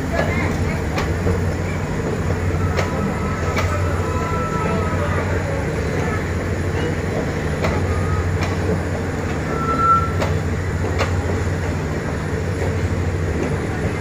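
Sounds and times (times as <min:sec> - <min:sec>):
train coaches rumbling: 0:00.0 - 0:14.0
high wheel squeal: 0:02.4 - 0:05.4, 0:09.3 - 0:10.4
wheels clicking over rail joints: 0:05.9 - 0:14.0.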